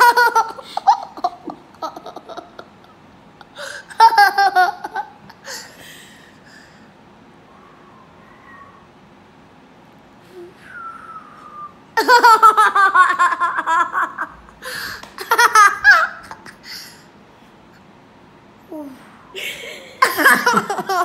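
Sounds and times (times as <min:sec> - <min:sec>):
child whistling: 0:07.6 - 0:08.8, 0:10.6 - 0:11.8
high-pitched laughter: 0:15.1 - 0:16.6, 0:19.4 - 0:21.0.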